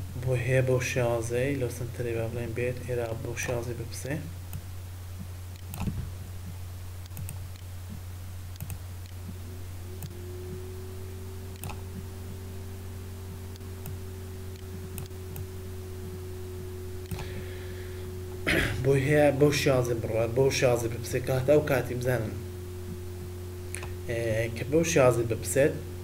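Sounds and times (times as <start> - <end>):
faint steady tone: 0.0 - 26.0
low electrical hum: 0.0 - 26.0
computer mouse clicks: 5.5 - 9.4, 11.6 - 11.8, 13.5 - 15.5, 17.0 - 17.4.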